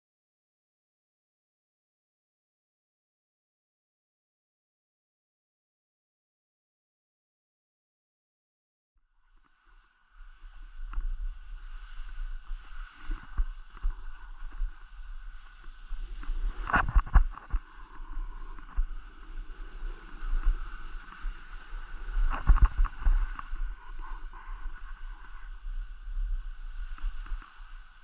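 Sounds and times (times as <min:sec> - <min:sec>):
wind rumbling on microphone: 0:09.3 - 0:28.0
scraping and sliding on snow: 0:09.7 - 0:28.0.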